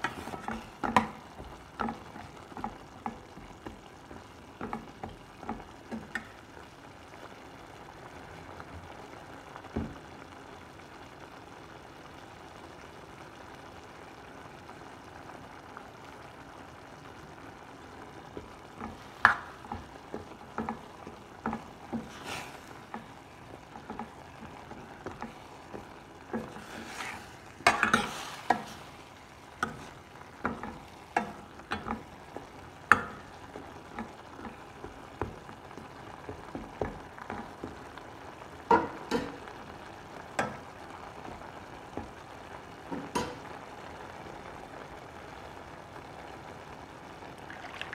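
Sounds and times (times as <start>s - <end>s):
low sizzle: 0.0s - 47.9s
ladle scraping metal pan: 21.5s - 23.1s, 26.3s - 28.9s.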